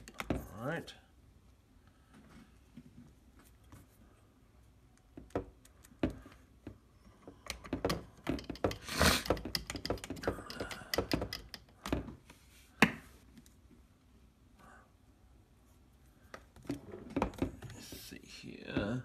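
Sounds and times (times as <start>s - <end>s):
clicks and taps on plastic shell: 7.4s - 12.1s.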